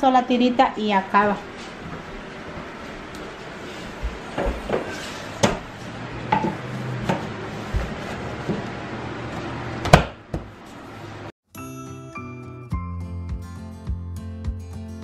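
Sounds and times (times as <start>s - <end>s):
music: 11.5s - 15.0s.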